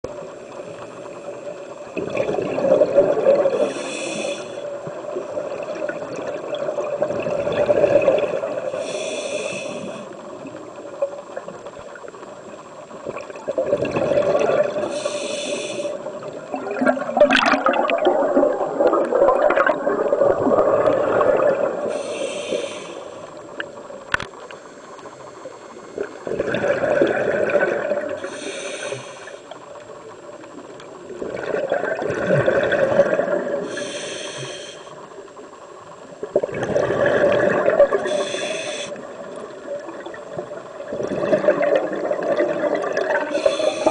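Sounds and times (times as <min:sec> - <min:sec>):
regulator inhalation hiss: 0:03.6 - 0:04.9, 0:08.7 - 0:10.6, 0:14.8 - 0:16.2, 0:21.8 - 0:23.6, 0:28.2 - 0:29.6, 0:33.6 - 0:35.2, 0:37.9 - 0:39.3, 0:43.2 - 0:43.9
bubbling exhaust: 0:16.4 - 0:22.8.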